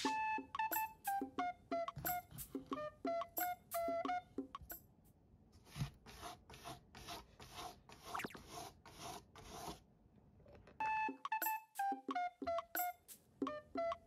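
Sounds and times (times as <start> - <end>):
cat scratching cardboard: 5.6 - 9.8.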